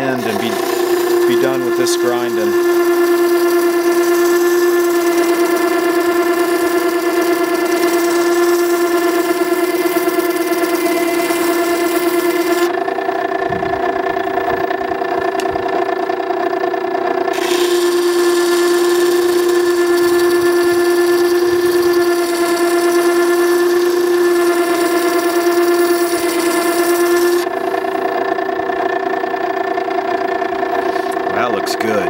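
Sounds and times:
steel hissing on grinding stone: 0.0s - 12.7s, 17.3s - 27.4s
grinder humming whine: 0.0s - 32.0s.

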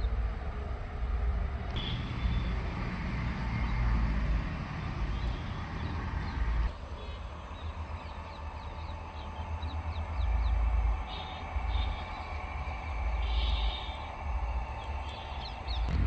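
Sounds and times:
small bird chirping: 13.1s - 14.1s.

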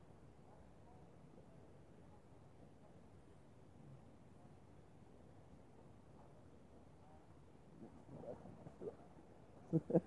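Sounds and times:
faint wavering sounds: 3.8s - 10.0s.

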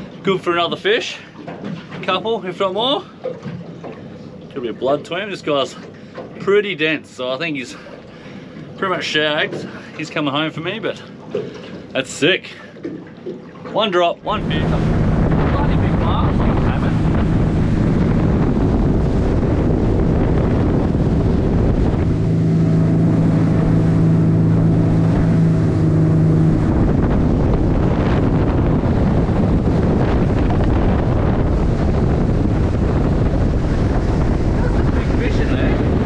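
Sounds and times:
boat engine drone: 0.0s - 36.0s
water rushing past hull: 0.0s - 36.0s
wind on the microphone: 14.2s - 36.0s.

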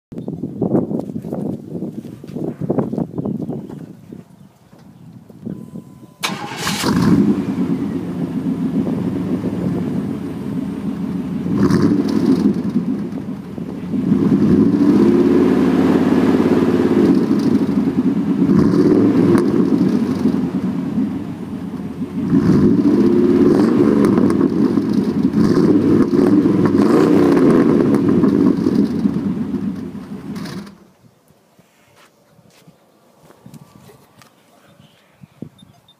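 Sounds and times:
car engine idling: 4.9s - 31.0s
car engine starting: 4.9s - 31.0s
car engine revving: 6.2s - 30.9s.

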